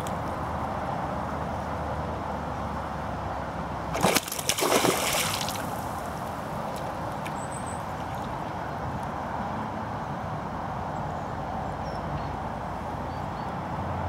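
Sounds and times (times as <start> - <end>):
fish splashing in water: 3.9 - 8.5.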